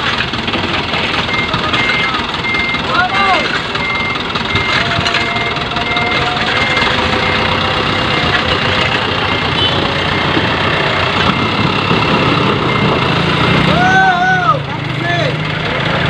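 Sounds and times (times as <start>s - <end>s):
diesel truck engine running: 0.0s - 16.0s
reversing beeper chirping: 1.1s - 13.9s.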